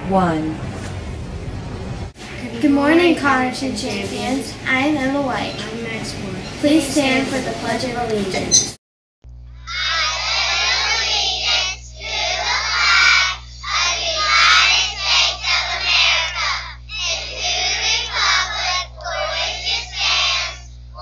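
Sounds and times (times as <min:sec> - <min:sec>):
children reciting in unison: 0:09.7 - 0:21.0.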